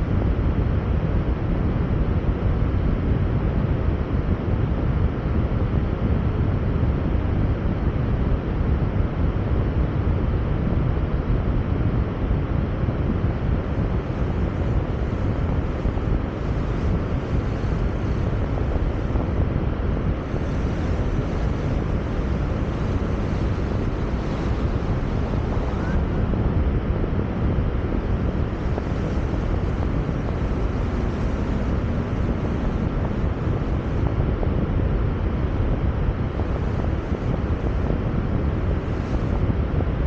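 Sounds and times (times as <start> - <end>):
wind on microphone: 0.0 - 40.0
car road noise: 12.9 - 39.8.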